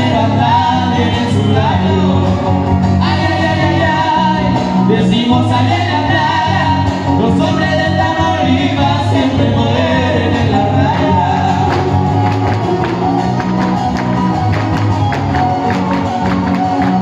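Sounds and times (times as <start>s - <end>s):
singing over strummed strings: 0.0s - 12.6s
dancers' footwork taps: 11.7s - 17.0s.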